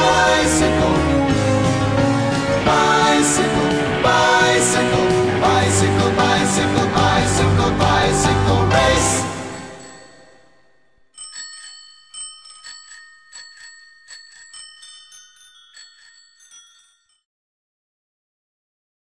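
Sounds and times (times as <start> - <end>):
music: 0.0 - 10.8
bicycle bell ringing: 9.4 - 17.2.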